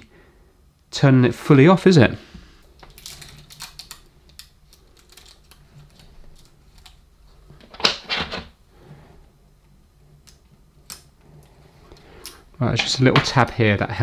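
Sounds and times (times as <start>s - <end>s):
small clicks and scrapes: 2.8s - 7.0s
tape being peeled: 2.8s - 7.1s.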